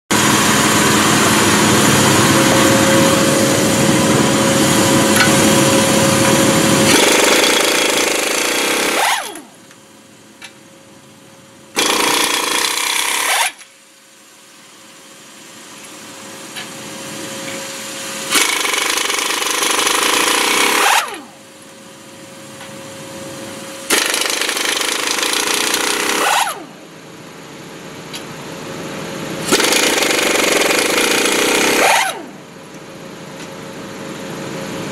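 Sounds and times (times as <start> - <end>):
loud machine noise with deep rumble: 0.1 - 34.9
impact wrench spinning down: 4.8 - 9.6, 11.8 - 13.6, 18.3 - 21.4, 23.9 - 26.8, 29.4 - 32.4
impact wrench hammering: 5.1 - 9.5, 11.8 - 13.6, 18.3 - 21.2, 23.9 - 26.7, 29.4 - 32.3.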